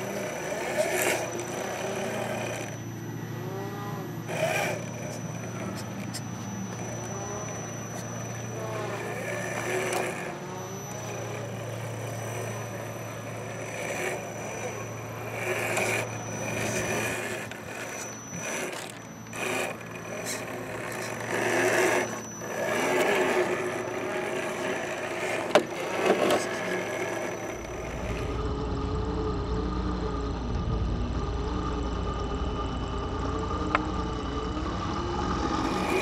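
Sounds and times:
electric motor and gears whining: 0.0 - 36.0
tyres scraping over rock: 4.3 - 28.2.

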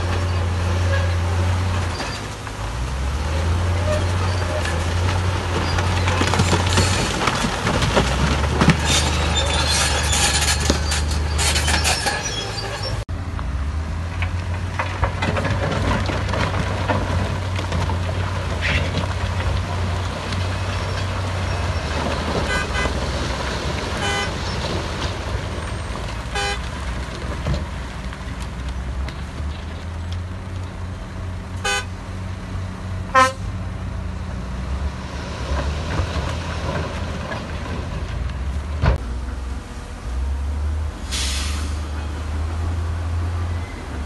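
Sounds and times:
diesel engine drone: 0.0 - 44.0
horn toots: 22.4 - 23.0, 24.0 - 24.4, 26.3 - 26.6, 31.6 - 31.9, 33.1 - 33.5.

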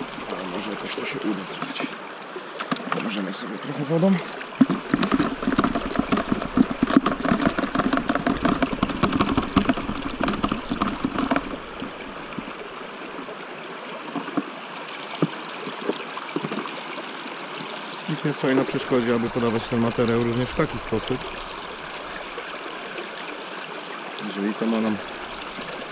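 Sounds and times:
stream rushing: 0.0 - 25.9
gravel sloshing in a bucket: 2.5 - 12.9, 18.1 - 22.5.

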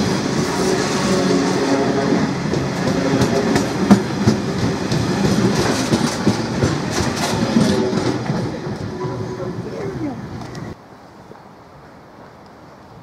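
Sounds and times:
train wheels clattering over rail joints: 0.0 - 9.2.

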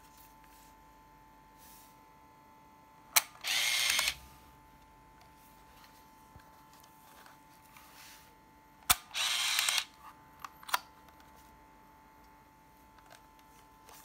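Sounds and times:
camera motor whirring: 3.2 - 4.2, 8.8 - 10.0
camera shutter click: 3.2 - 4.2, 8.9 - 9.9.

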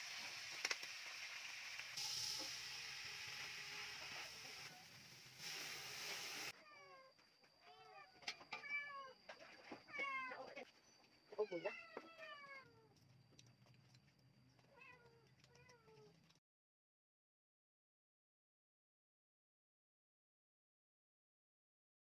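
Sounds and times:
cat meowing: 11.4 - 12.9.

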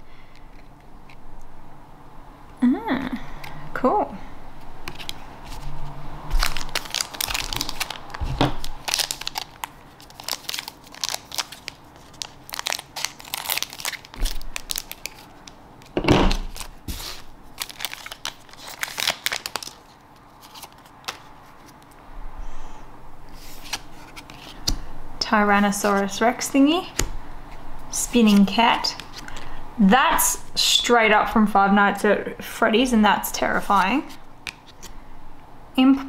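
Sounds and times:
foil wrapper crinkling: 6.3 - 21.3
cards sliding and tapping: 23.4 - 24.9.

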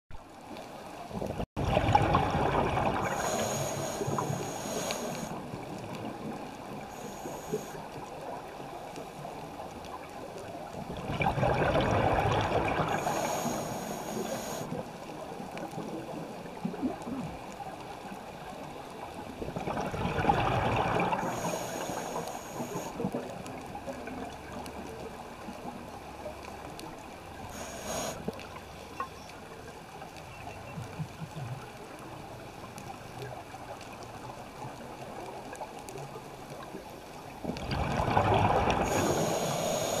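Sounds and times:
steady underwater wash: 0.1 - 40.0
gurgling exhaled bubbles: 1.2 - 7.7, 10.8 - 14.8, 19.4 - 24.6, 37.4 - 40.0
regulator hiss: 3.1 - 5.4, 6.8 - 7.9, 13.0 - 14.8, 21.2 - 23.0, 27.5 - 28.3, 38.8 - 40.0.

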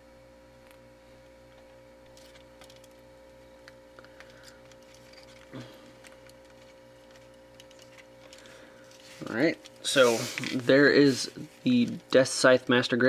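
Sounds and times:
faint electrical hum: 0.0 - 13.0
plastic parts clicking and tapping: 4.1 - 8.5.

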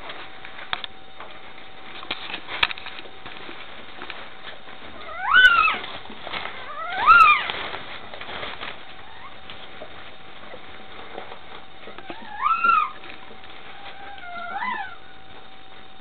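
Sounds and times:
puppy crying high squeals: 5.0 - 5.8, 6.7 - 7.5, 12.1 - 13.0, 13.7 - 15.0.

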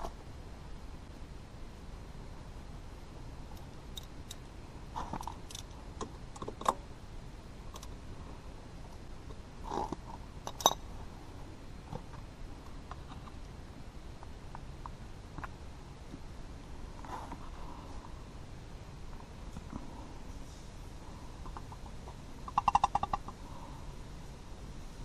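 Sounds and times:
soft rustles: 16.8 - 18.3.

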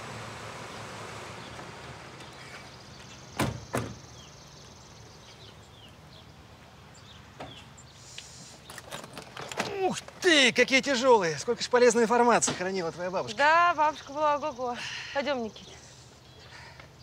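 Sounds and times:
car doors shutting: 0.0 - 4.2.

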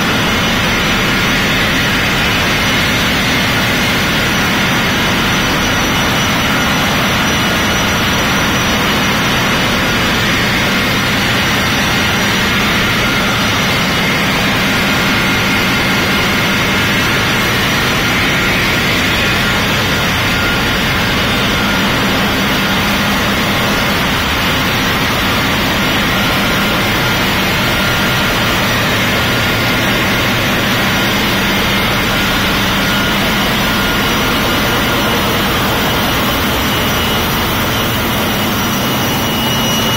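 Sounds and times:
ship engine room machinery hum: 0.0 - 39.9.

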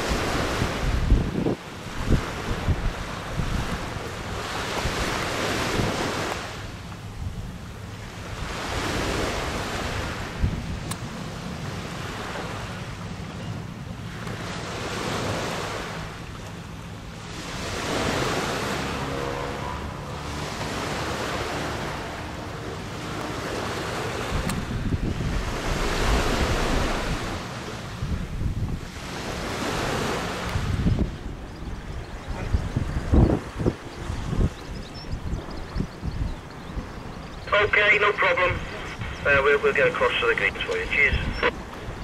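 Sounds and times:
wind buffeting microphone: 0.0 - 16.5, 20.1 - 37.5
steady low rumble: 37.4 - 41.5.

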